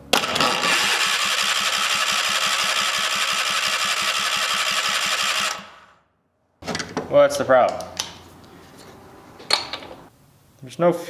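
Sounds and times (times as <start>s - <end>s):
small engine starting and idling: 0.1s - 6.0s.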